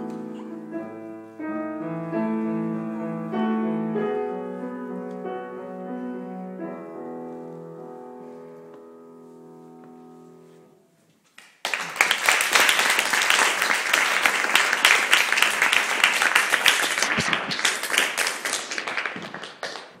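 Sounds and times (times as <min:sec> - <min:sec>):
audience applause: 0:11.4 - 0:20.0.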